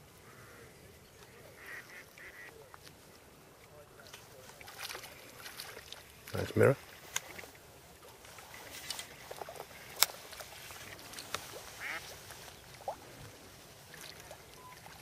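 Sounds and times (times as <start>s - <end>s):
ducks quacking: 1.4s - 2.6s, 11.6s - 12.2s.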